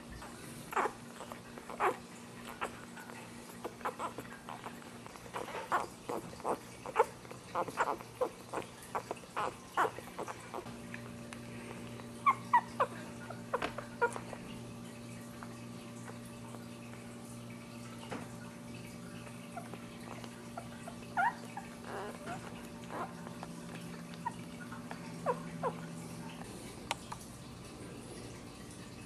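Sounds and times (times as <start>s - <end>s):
puppies squeaking and whimpering: 0.6s - 10.7s, 11.6s - 14.5s, 19.2s - 26.4s.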